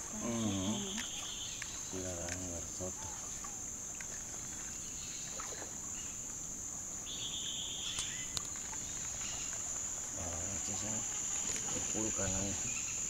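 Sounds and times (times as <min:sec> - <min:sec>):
lower buzzing call: 0:00.0 - 0:01.9
insects buzzing high-pitched drone: 0:00.0 - 0:13.0.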